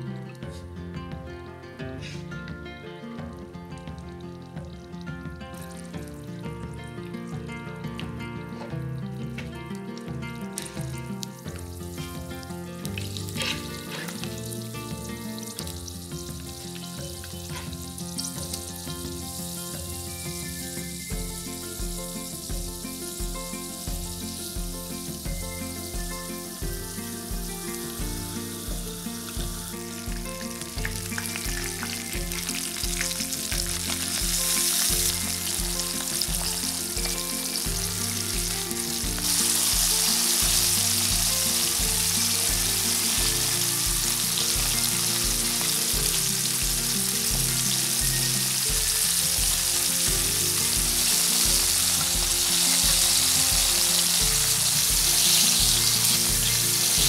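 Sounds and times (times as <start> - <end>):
background music with steady beat: 0.0 - 57.0
fish sizzling in hot oil: 5.6 - 6.2, 10.6 - 57.0.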